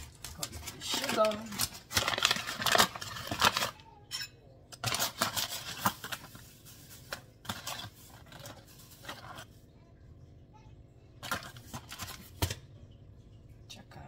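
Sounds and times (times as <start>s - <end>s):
plastic bags crinkling: 0.0s - 3.8s, 4.8s - 9.5s, 11.2s - 12.6s.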